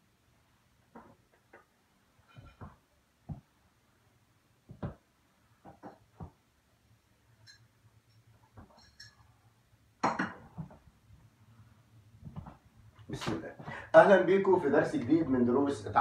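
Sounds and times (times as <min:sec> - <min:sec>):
soft knocks and thumps: 0:02.3 - 0:03.6, 0:04.6 - 0:06.4, 0:12.2 - 0:13.8.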